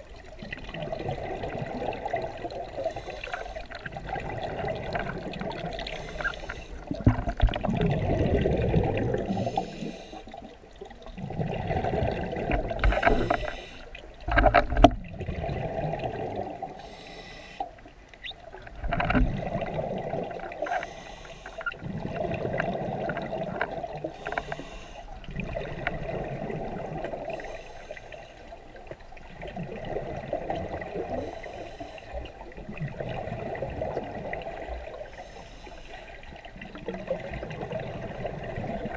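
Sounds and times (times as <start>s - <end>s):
underwater breathing bubbles: 0.0s - 17.9s, 18.8s - 28.6s, 29.3s - 38.9s.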